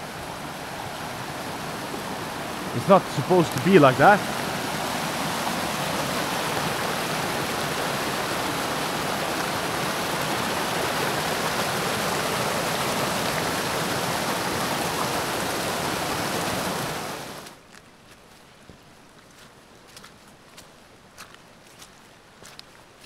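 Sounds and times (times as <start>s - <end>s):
stream rushing in flood: 0.0s - 17.7s.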